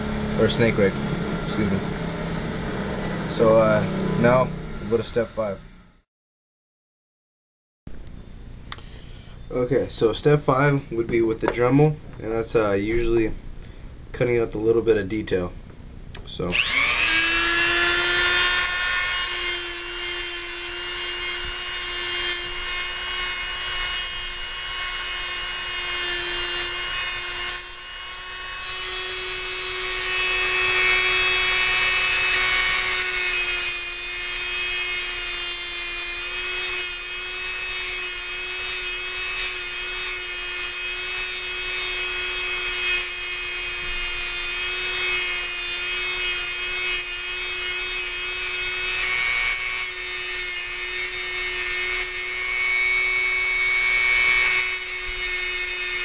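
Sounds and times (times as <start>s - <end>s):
rotary tool motor whine: 0.0s - 6.0s, 16.4s - 56.0s
rasping grind on wire: 16.6s - 56.0s.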